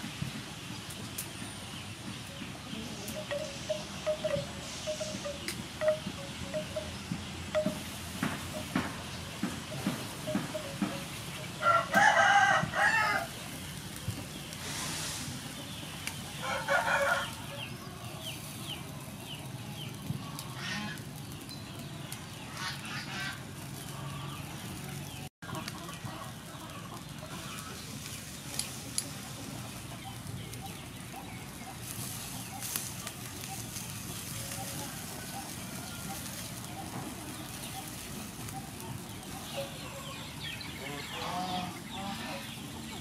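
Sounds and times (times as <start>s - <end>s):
rooster crowing: 11.6s - 13.4s, 16.4s - 17.7s.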